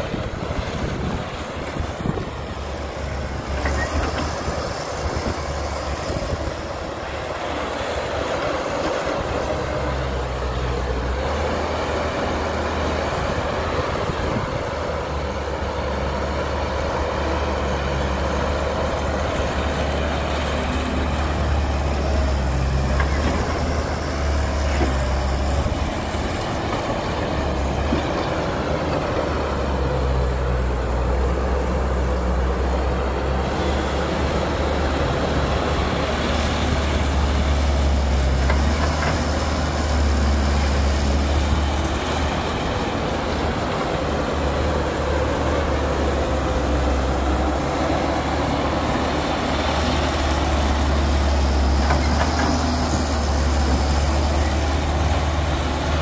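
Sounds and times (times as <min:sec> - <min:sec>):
excavator diesel engine rumbling: 0:00.0 - 0:56.0.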